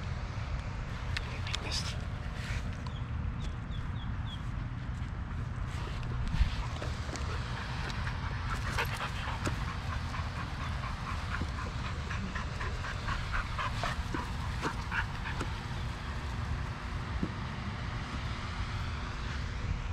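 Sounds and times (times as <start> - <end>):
dog panting: 4.3 - 17.4.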